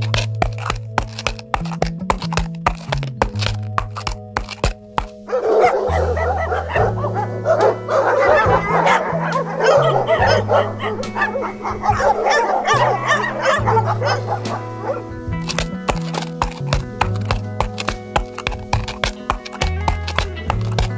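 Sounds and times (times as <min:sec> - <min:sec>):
background music with beat: 0:00.0 - 0:20.9
dogs yipping and whining: 0:05.2 - 0:15.8.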